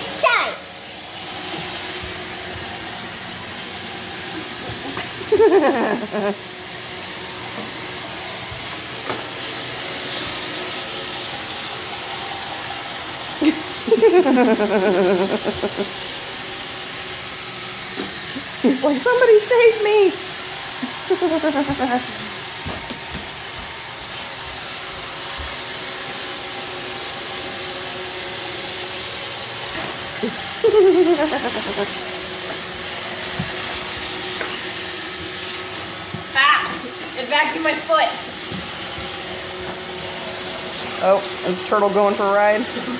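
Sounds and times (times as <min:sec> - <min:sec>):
robot vacuum hissing: 0:00.0 - 0:41.6
person's voice: 0:41.0 - 0:42.9.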